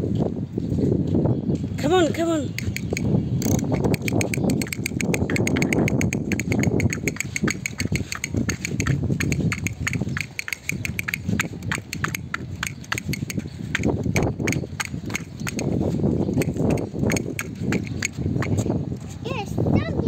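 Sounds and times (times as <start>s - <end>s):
toy drummer tapping plastic drum: 2.5s - 15.8s, 16.4s - 18.6s.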